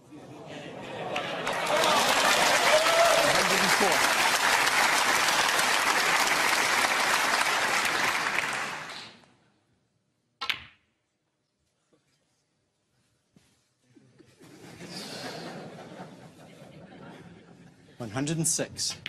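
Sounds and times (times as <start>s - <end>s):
audience applauding: 1.1s - 9.2s.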